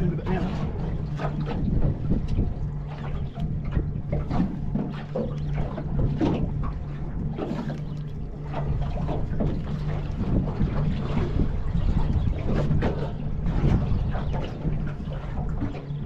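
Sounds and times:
outboard motor idling: 0:00.0 - 0:16.0
water slapping against hull: 0:00.0 - 0:16.0
wind on microphone: 0:00.0 - 0:16.0.

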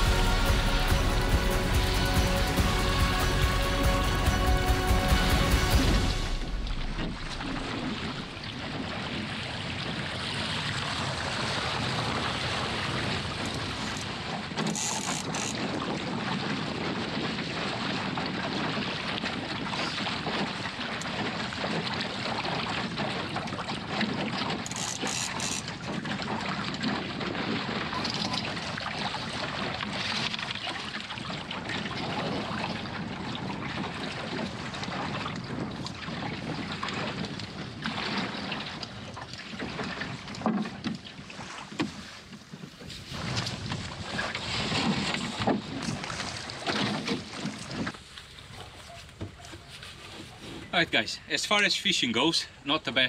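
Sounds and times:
water splashing along a hull: 0:00.0 - 0:53.0
wind buffeting microphone: 0:31.2 - 0:40.4, 0:41.2 - 0:48.0.

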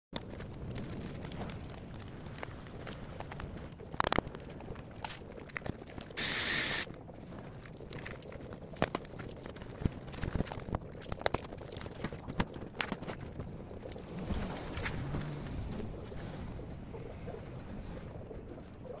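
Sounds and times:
loud hiss: 0:06.2 - 0:06.8.

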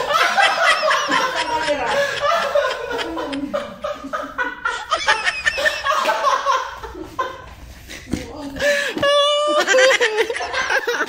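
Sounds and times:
people laughing hard: 0:00.0 - 0:11.0.

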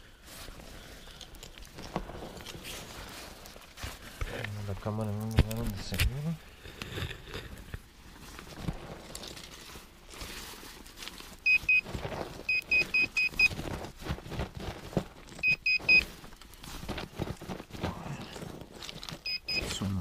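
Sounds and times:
soil scraping and rustling: 0:00.0 - 0:20.0
rapid high beeps: 0:19.3 - 0:19.8.

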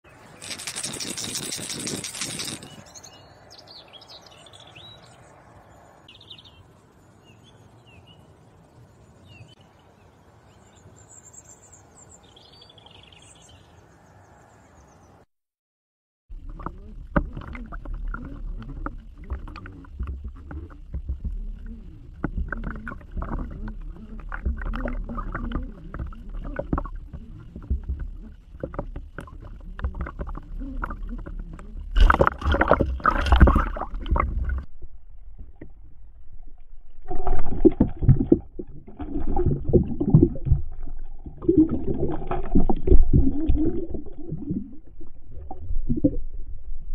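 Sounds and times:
birds chirping: 0:00.1 - 0:15.2
underwater rumbling: 0:16.3 - 0:46.9
lures clicking underwater: 0:16.4 - 0:34.7.

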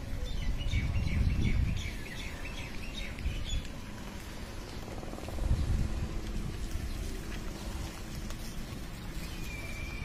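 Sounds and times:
small birds chirping: 0:00.0 - 0:10.0
low rumble: 0:03.1 - 0:09.9.

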